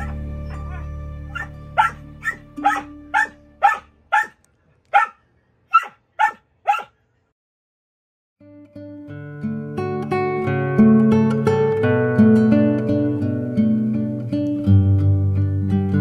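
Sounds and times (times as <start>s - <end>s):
background music: 0.0s - 4.3s, 8.4s - 16.0s
dog barking: 0.0s - 7.0s.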